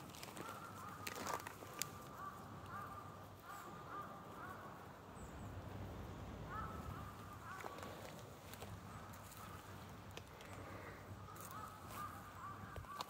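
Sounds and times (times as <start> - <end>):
crow cawing: 0.1 - 5.1, 6.4 - 13.0.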